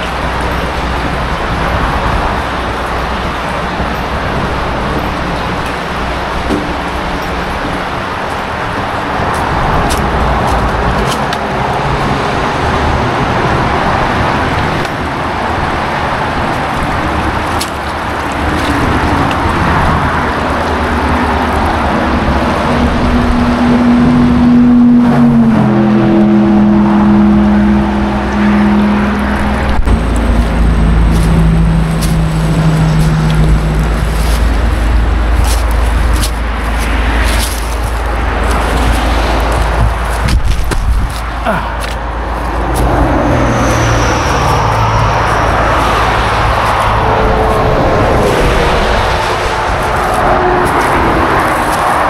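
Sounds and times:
highway traffic tyre roar: 0.0s - 52.0s
vehicle engine passing by: 0.0s - 52.0s.

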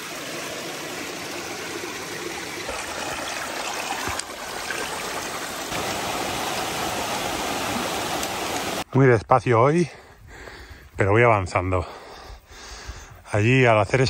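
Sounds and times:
stream rushing: 0.0s - 8.8s.

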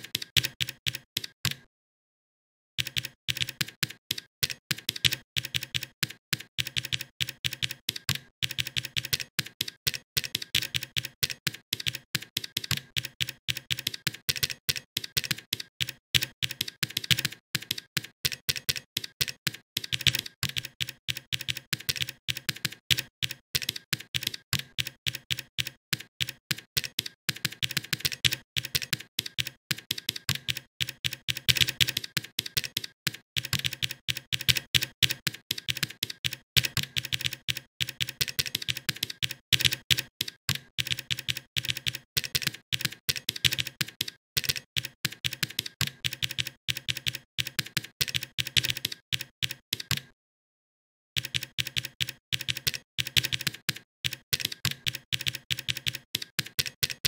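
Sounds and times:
keyboard key clicks: 26.0s - 50.1s.

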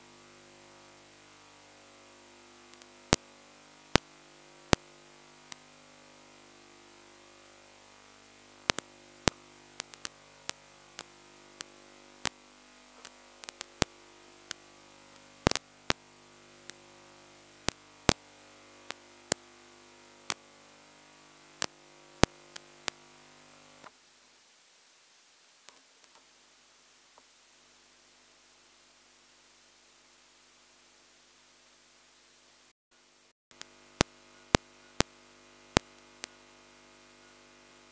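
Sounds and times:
electrical hum: 0.0s - 23.9s, 33.5s - 37.9s
sharp clicks: 8.7s - 12.4s, 13.0s - 16.0s.

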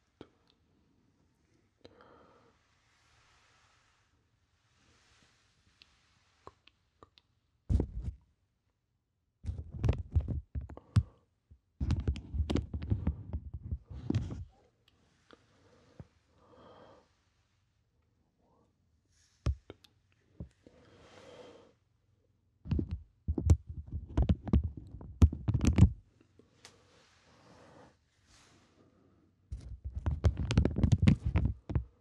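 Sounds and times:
faint clicks and rustles: 9.4s - 16.2s, 29.5s - 32.0s.

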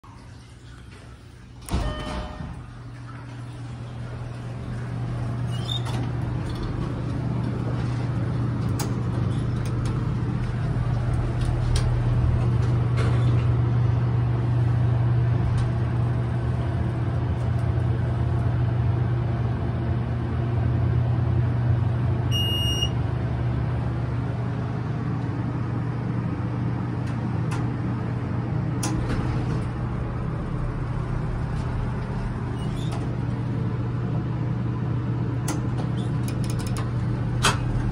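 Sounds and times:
elevator pump motor humming: 0.1s - 37.9s
electronic ding: 1.7s - 2.5s.

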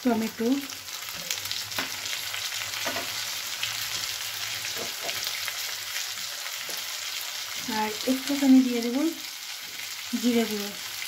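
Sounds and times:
vegetables sizzling in oil: 0.0s - 11.0s.

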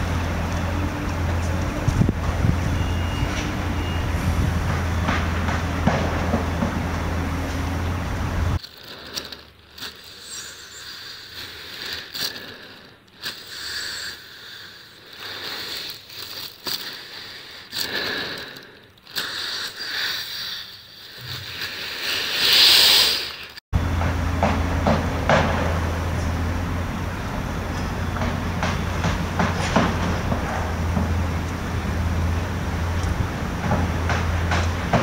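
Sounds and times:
low rumble of city traffic: 0.0s - 16.5s, 23.7s - 35.0s
breathing inside plastic bag: 8.6s - 23.6s.

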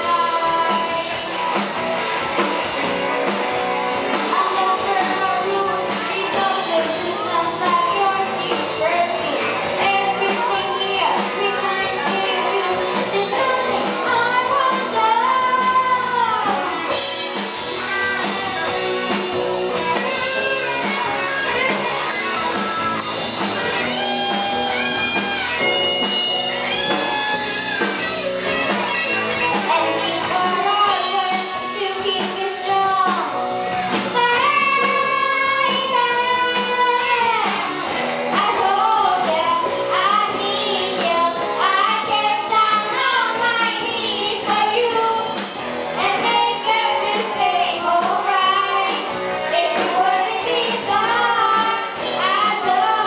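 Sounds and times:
girls singing into microphones: 0.0s - 1.2s, 4.3s - 17.0s, 29.7s - 33.4s, 34.1s - 37.6s, 38.2s - 53.0s
amplified electric guitar: 0.0s - 53.0s.

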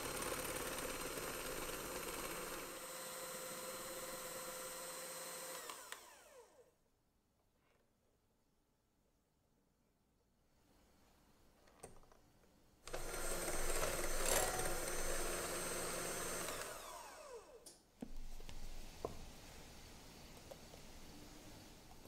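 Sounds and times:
electric hand mixer whirring: 0.0s - 6.6s, 12.9s - 17.6s.

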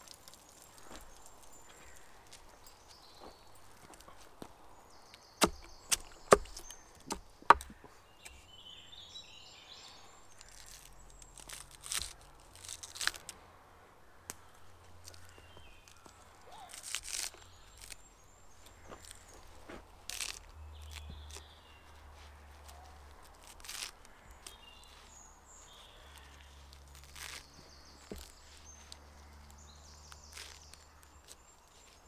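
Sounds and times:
hatchet chopping stems on wood: 5.4s - 8.4s, 27.0s - 29.0s.

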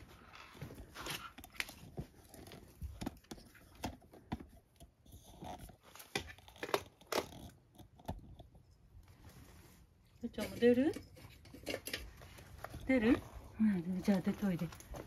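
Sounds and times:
footsteps on stone tiles: 14.0s - 15.0s.

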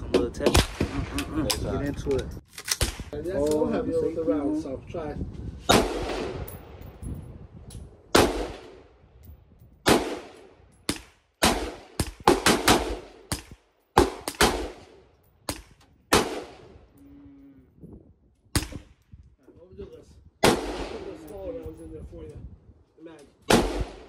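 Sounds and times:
rifle shots with echo: 5.7s - 6.5s, 8.1s - 8.9s, 9.8s - 16.7s, 20.4s - 21.3s, 23.5s - 24.0s.

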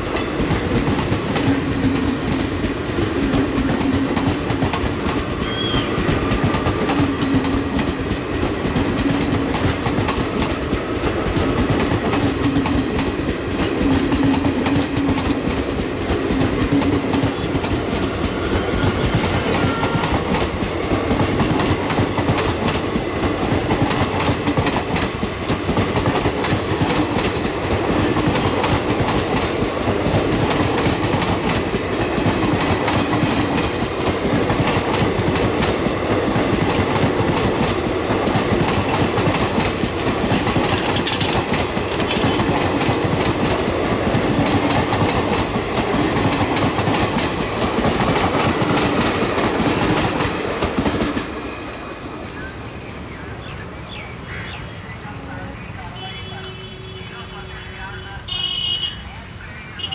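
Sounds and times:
passenger train rumbling past: 0.0s - 59.9s.

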